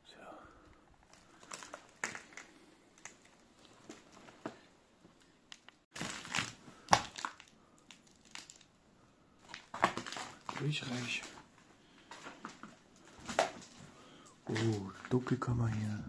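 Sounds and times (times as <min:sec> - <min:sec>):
paper crunching and crinkling: 0:01.1 - 0:04.6, 0:05.9 - 0:08.7, 0:09.4 - 0:16.0.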